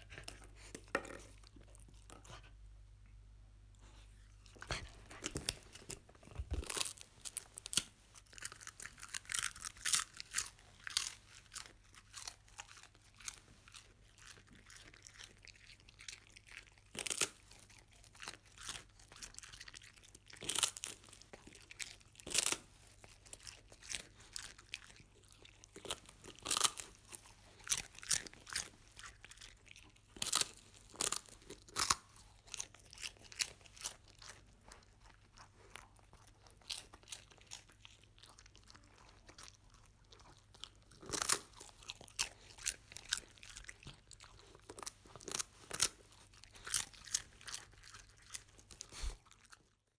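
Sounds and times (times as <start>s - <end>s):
dog crunching food: 3.9s - 49.9s.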